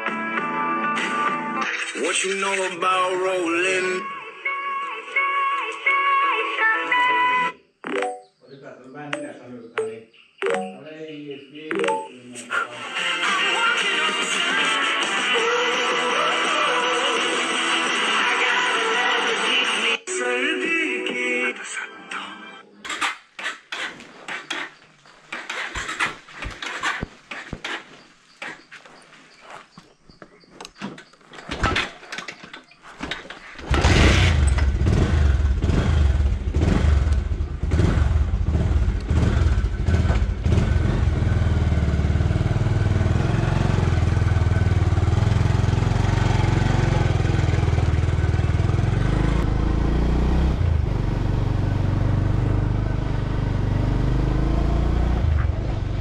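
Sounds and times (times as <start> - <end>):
motorcycle engine running: 33.7 - 56.0.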